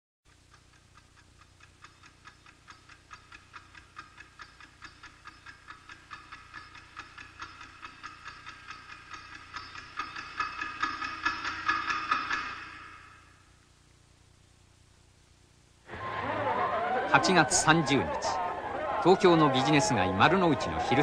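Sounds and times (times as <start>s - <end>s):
clock ticking: 0.3s - 13.2s.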